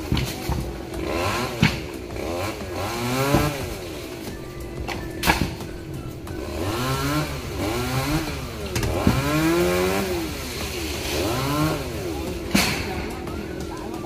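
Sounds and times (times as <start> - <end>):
chainsaw revving while sawing: 0.6 - 4.3, 6.1 - 12.6.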